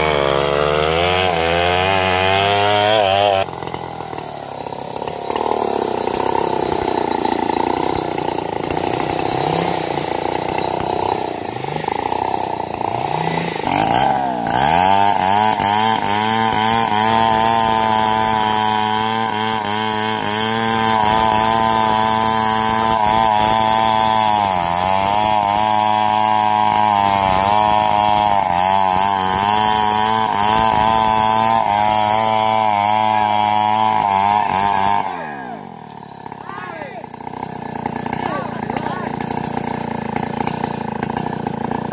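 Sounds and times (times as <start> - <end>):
chainsaw revving: 0.0 - 41.9.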